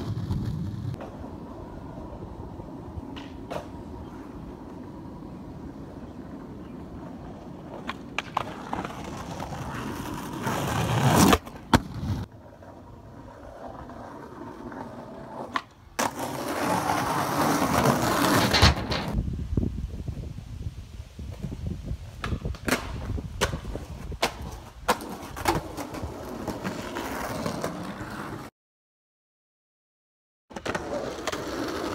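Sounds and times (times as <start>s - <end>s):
skateboard wheels rolling on pavement: 0.0s - 28.5s, 30.5s - 31.9s
skateboard clacks: 7.2s - 9.5s.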